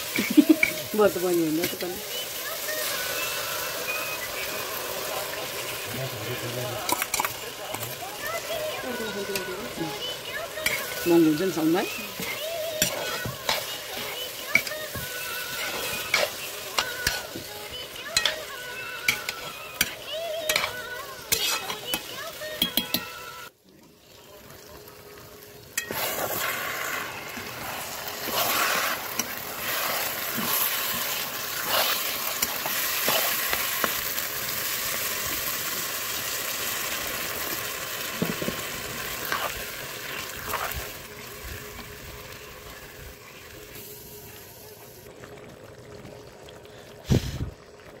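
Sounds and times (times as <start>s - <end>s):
curry sizzling in a hot pan: 0.0s - 45.1s
metal spoon scraping a pan: 10.6s - 23.1s, 25.8s - 27.0s, 27.6s - 33.7s, 39.2s - 39.6s
water pouring: 23.9s - 43.8s, 44.5s - 48.0s.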